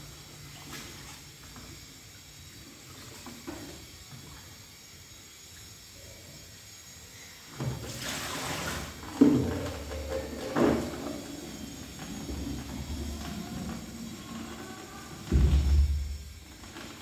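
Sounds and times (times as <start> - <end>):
water splashing in sink: 0.0 - 4.8, 7.5 - 17.0
plastic colander knocking against sink: 9.1 - 11.0.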